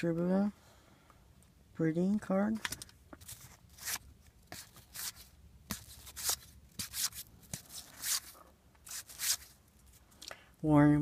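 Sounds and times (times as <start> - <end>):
trading cards swishing and clicking: 3.2 - 9.6.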